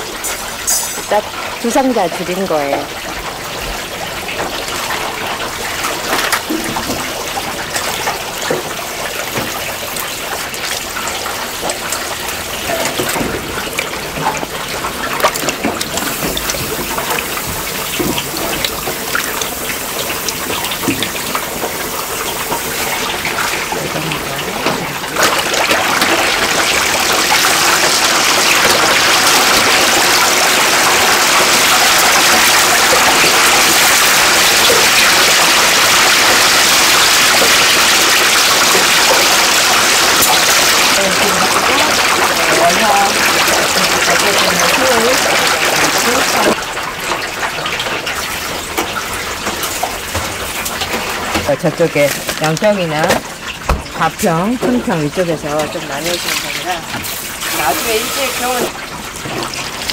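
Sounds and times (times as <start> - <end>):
running water splashing: 0.0 - 59.9
knocks and clatter in water: 0.8 - 57.2
steady rush of water: 22.2 - 47.9, 54.7 - 59.9.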